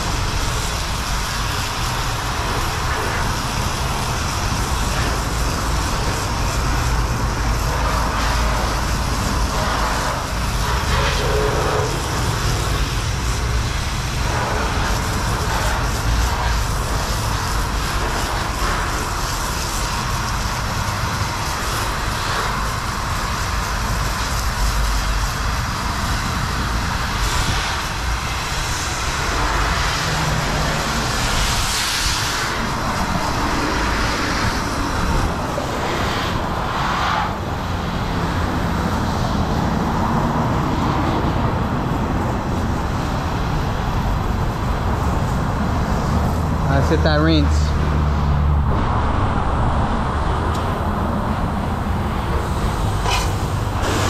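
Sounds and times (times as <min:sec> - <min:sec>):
spray wand rushing spray: 0:00.0 - 0:46.6, 0:50.6 - 0:54.0.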